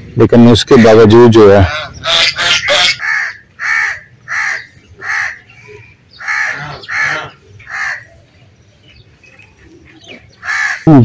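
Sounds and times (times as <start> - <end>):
crow cawing: 1.6 - 8.2, 10.3 - 10.9.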